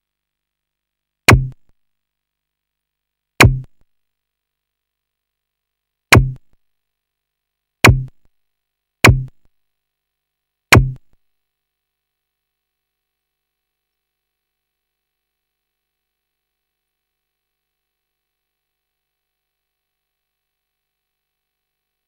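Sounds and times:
sharp hit with low thud: 0:01.3 - 0:01.6, 0:03.4 - 0:03.7, 0:06.1 - 0:06.4, 0:07.9 - 0:08.1, 0:09.1 - 0:09.3, 0:10.7 - 0:11.0.

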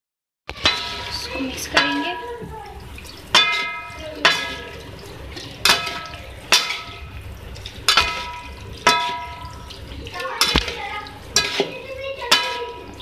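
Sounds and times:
utensil knocking on metal frying pan: 0:03.3 - 0:04.6, 0:05.6 - 0:07.1, 0:07.9 - 0:09.6, 0:10.4 - 0:12.9.

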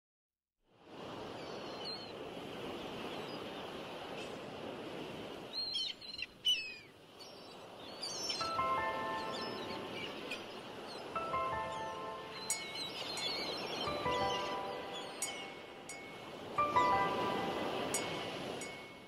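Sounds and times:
small birds chirping: 0:05.5 - 0:18.3
music: 0:08.4 - 0:10.0, 0:11.2 - 0:12.8, 0:13.8 - 0:18.9.

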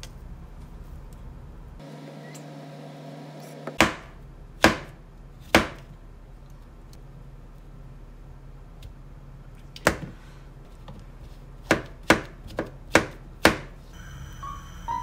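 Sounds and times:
knife chopping on cutting board: 0:03.7 - 0:05.9, 0:11.6 - 0:13.8.

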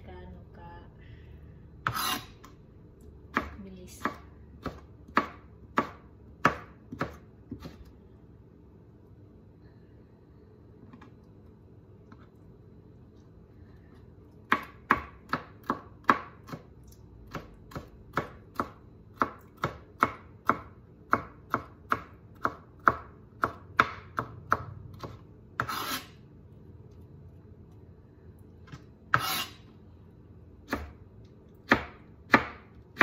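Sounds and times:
knife blade scraping board: 0:01.8 - 0:02.4, 0:25.6 - 0:26.2, 0:29.1 - 0:29.6
knife chopping on plastic board: 0:03.3 - 0:07.9, 0:14.5 - 0:26.1, 0:30.6 - 0:31.0, 0:31.6 - 0:33.0.

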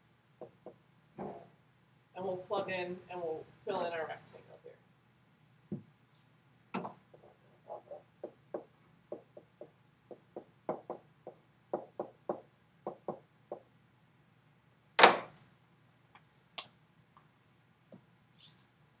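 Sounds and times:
stylus tapping and scratching: 0:00.4 - 0:01.5, 0:06.8 - 0:13.7
loud thump: 0:01.2 - 0:01.5.

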